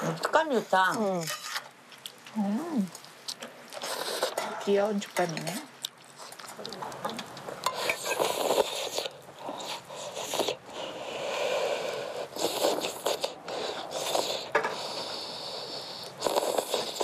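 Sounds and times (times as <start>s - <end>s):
person slurping noodles: 7.7s - 17.0s.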